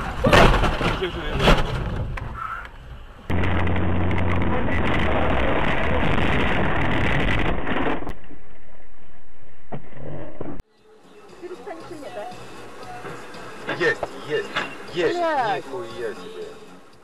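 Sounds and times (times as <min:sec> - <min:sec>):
road and wind noise from car: 0:00.0 - 0:07.6
low hum: 0:01.6 - 0:10.6.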